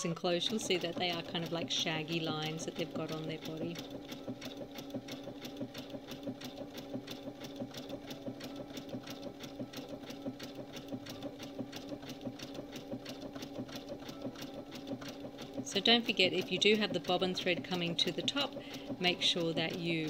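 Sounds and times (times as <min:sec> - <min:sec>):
sewing machine motor hum: 0:00.0 - 0:20.0
sewing machine needle clicking: 0:00.0 - 0:20.0.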